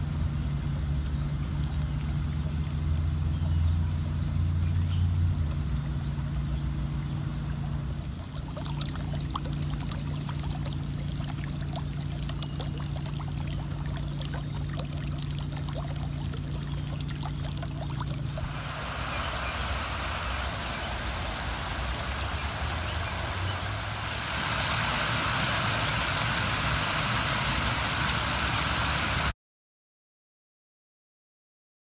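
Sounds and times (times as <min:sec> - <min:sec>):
low hum: 0:00.0 - 0:29.3
water bubbling up through lawn: 0:00.0 - 0:29.3
water trickling: 0:00.0 - 0:29.3
water spilling over stone ledge: 0:07.8 - 0:29.3.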